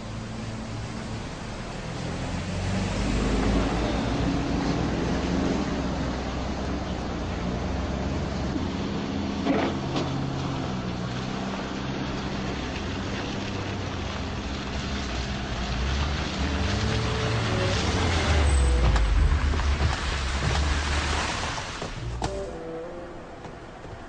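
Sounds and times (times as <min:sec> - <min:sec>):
car engine and tyre noise: 0:00.0 - 0:24.0.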